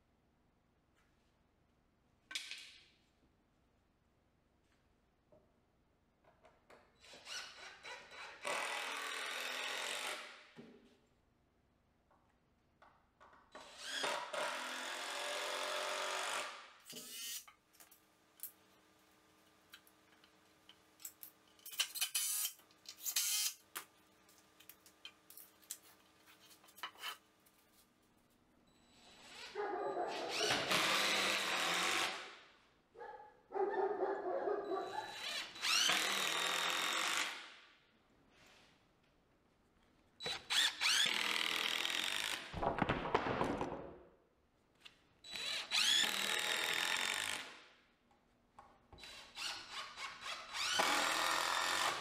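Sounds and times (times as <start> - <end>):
power drill drilling wood: 7.0 - 10.3, 13.6 - 17.4, 30.3 - 32.2, 35.1 - 37.4, 40.3 - 42.5, 45.3 - 47.5, 49.0 - 52.0.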